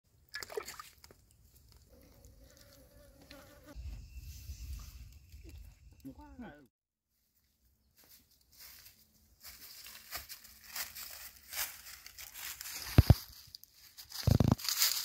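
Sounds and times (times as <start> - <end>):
feet crunching through dry leaves: 8.0 - 15.0.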